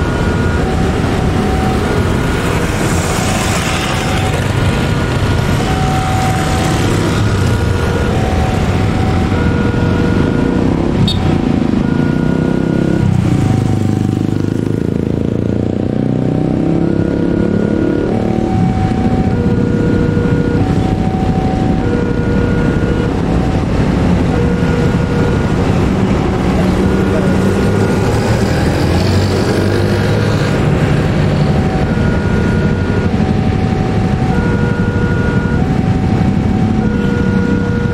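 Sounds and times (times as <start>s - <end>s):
level crossing alarm tones: 0.0s - 37.9s
diesel locomotive rumble: 17.6s - 37.9s.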